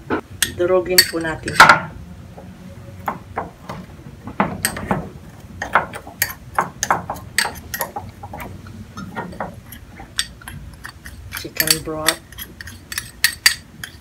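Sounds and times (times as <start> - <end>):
metal spoon clinking on glass bowl: 0.4 - 1.8, 5.6 - 8.0, 9.0 - 14.0.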